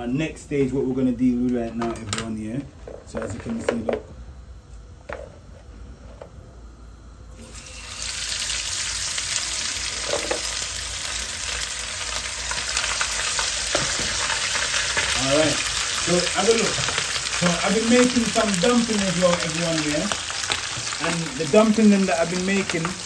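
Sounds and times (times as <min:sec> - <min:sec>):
food sizzling in hot oil: 0:07.4 - 0:23.0.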